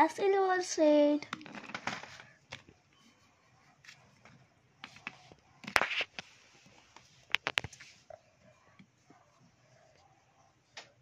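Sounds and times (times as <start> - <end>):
crayons clattering: 1.2 - 2.7
crayons tapping and scraping: 1.2 - 2.8, 3.8 - 9.2.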